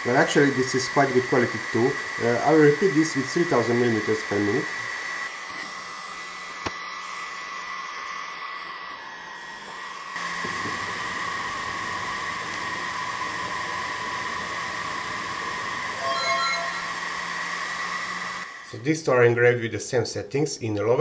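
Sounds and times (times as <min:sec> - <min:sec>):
cooling fan whine: 0:00.0 - 0:19.3.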